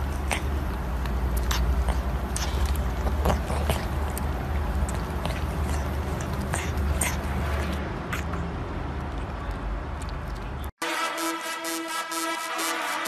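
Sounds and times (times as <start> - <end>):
kitten lapping milk: 0.0 - 8.3.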